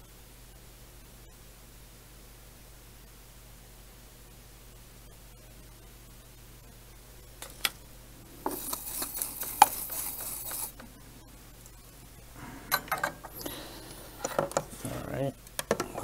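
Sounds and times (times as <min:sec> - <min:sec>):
scratchy noise: 0:08.2 - 0:10.8.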